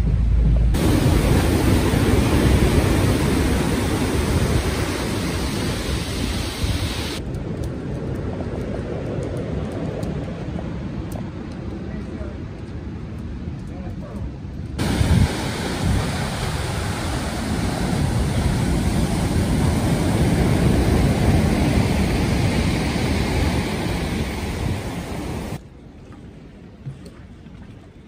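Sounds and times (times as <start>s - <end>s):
wind buffeting microphone: 0.0s - 28.0s
surf washing up pebble beach: 0.8s - 7.2s, 14.8s - 25.6s.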